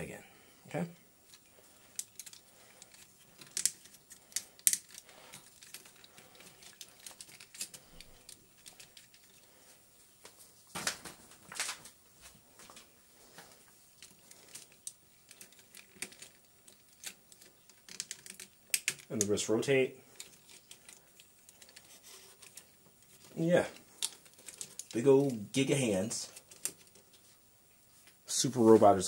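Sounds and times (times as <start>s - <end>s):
action figure parts clicking: 1.9s - 9.2s, 14.5s - 19.2s.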